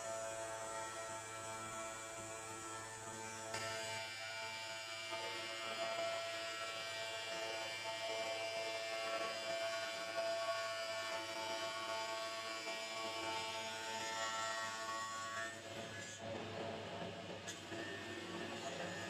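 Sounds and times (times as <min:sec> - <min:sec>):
tile cutting machine running: 0:00.0 - 0:16.6.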